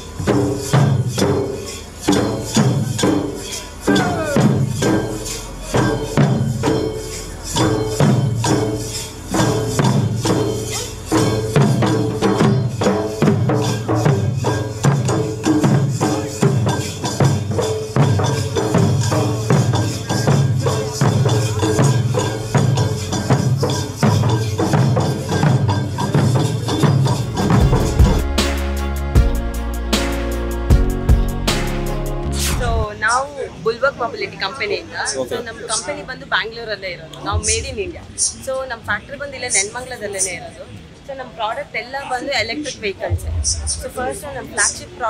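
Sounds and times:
barrel drums beating: 0.0s - 32.9s
jingling metal percussion: 0.0s - 45.0s.

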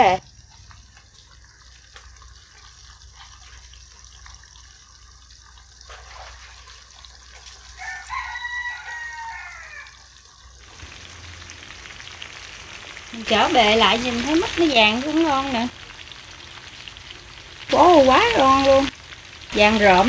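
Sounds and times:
food sizzling in oil: 6.9s - 20.0s
rooster crowing: 7.7s - 10.1s.

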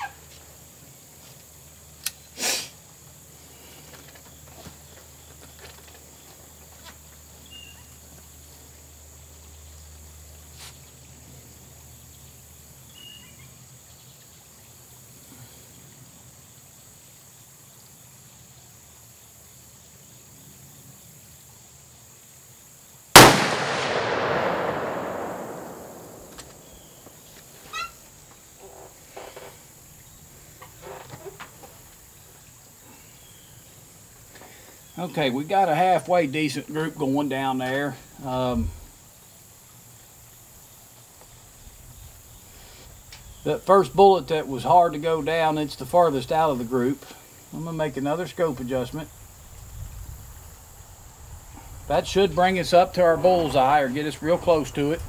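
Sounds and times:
rifle shot echoing: 23.2s - 27.1s.

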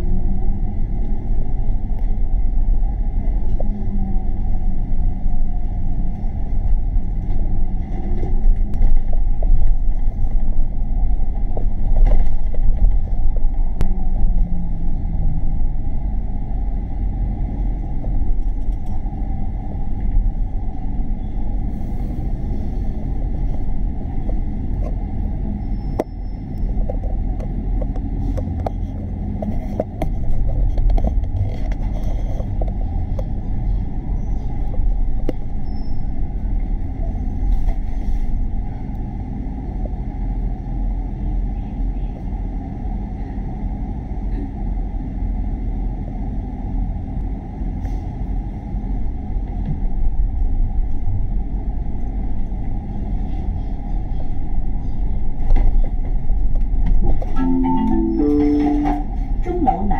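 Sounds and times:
bus engine and road noise: 0.0s - 59.9s.

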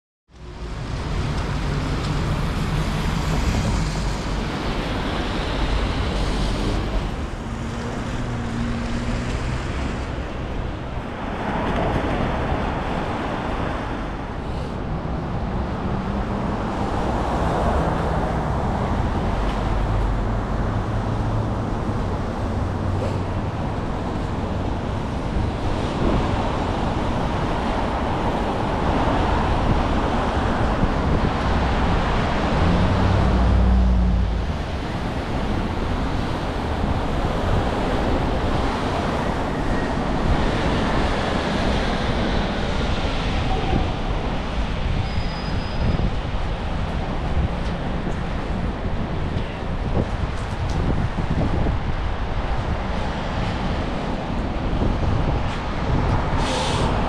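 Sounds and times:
passing car traffic: 0.3s - 57.0s.

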